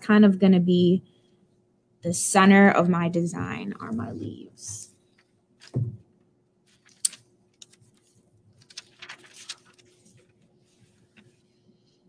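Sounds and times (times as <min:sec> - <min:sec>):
soft thump on table: 0:05.7 - 0:06.0
crinkly rustling of leaves: 0:08.6 - 0:10.3.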